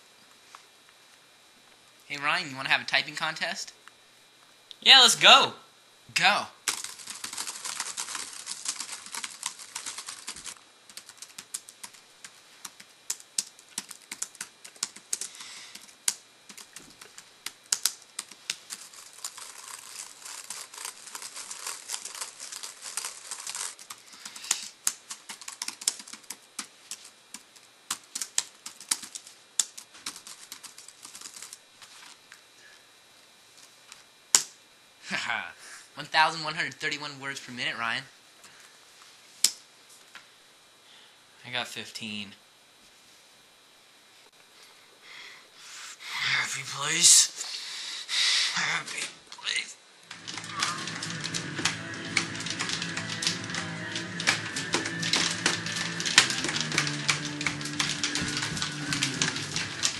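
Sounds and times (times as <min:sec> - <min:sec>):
fast typing on laptop keyboard: 0:06.7 - 0:31.6, 0:50.1 - 0:59.9.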